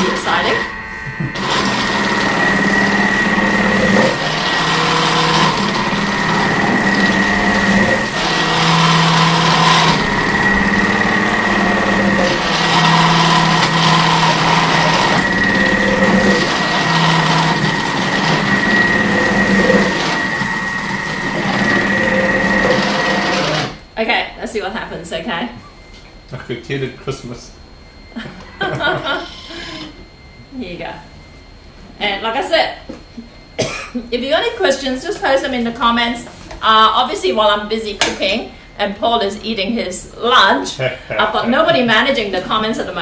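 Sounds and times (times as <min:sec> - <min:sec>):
food processor motor whirring: 0:00.0 - 0:23.9.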